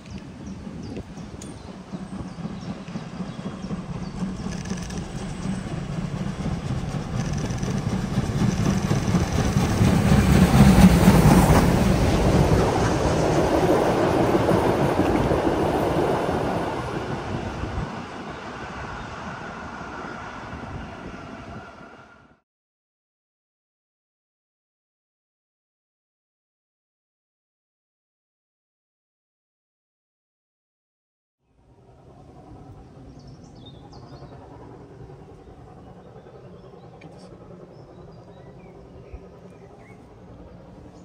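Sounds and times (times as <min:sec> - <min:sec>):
train passing: 0:00.0 - 0:22.4, 0:31.5 - 0:41.0.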